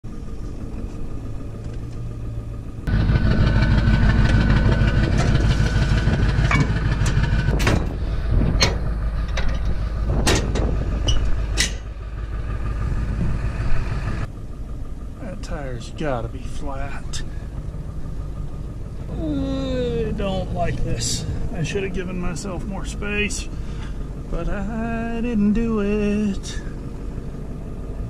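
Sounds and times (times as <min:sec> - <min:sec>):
truck engine idling: 0:00.0 - 0:28.0
sharp knocks and clanks: 0:03.0 - 0:12.0.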